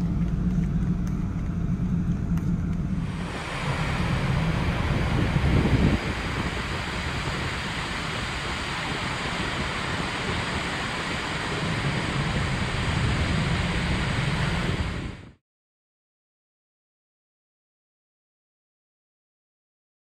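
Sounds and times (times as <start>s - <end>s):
sea water streaming past ship: 0.0s - 15.4s
wind buffeting microphone: 0.0s - 15.4s.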